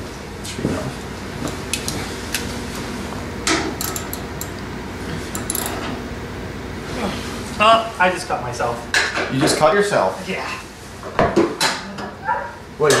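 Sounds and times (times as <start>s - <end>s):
low steady hum: 1.5s - 10.2s
metallic clinks of hand tools: 5.3s - 5.9s.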